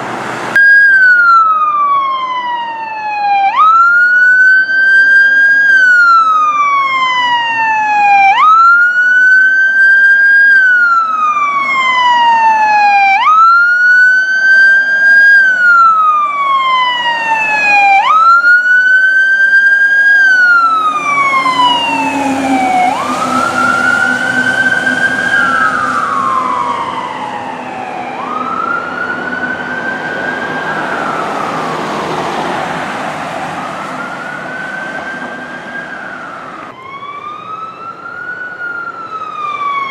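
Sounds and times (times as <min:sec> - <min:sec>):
emergency vehicle siren wailing: 0:00.0 - 0:39.9
vehicle passing with low rumble: 0:13.4 - 0:39.8.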